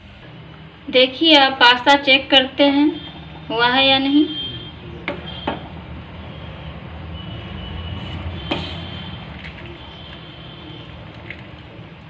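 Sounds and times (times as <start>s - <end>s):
ladle stirring in steel pot: 8.0s - 12.0s.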